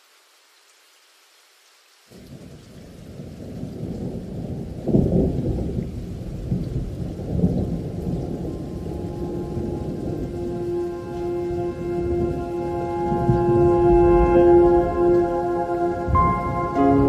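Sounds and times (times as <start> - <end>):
deep rolling thunder: 2.3 - 17.0
held musical note: 8.6 - 17.0.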